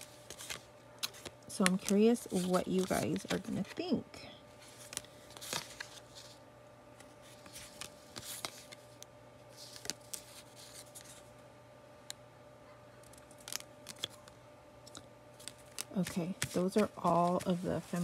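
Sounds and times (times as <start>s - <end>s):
paper rustling: 0.0s - 3.8s, 4.6s - 6.4s, 7.2s - 8.9s, 9.5s - 11.3s, 14.9s - 18.0s
paper swishing: 16.0s - 18.0s.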